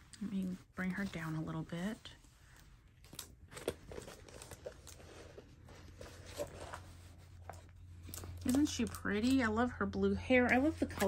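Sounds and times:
plastic film crinkling and rustling: 0.0 - 9.5.

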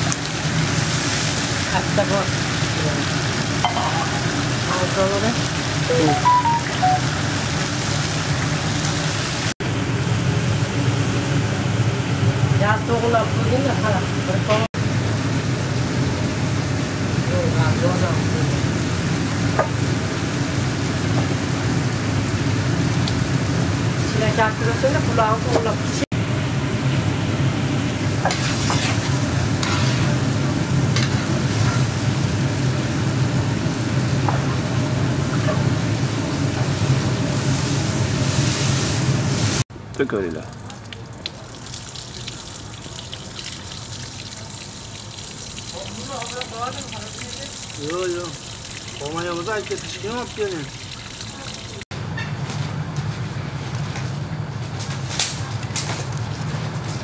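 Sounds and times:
broth bubbling in a pot: 14.8 - 51.8.

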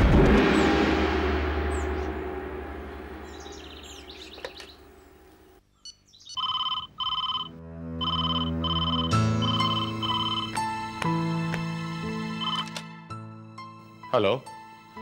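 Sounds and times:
low rumbling sound: 0.0 - 5.4
bird chirps: 3.2 - 10.5
telephone double ring: 6.4 - 10.5
soft background music: 7.0 - 15.0.

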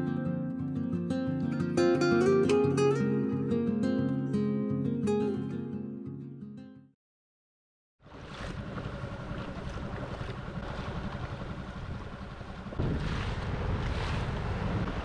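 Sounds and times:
water rushing past boat: 8.0 - 15.0
wind buffeting microphone: 8.1 - 15.0.

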